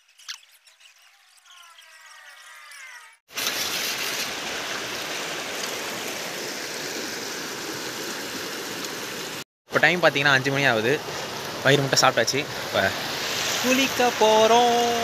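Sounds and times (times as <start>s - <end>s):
faint squeaky sound: 0.0s - 3.2s.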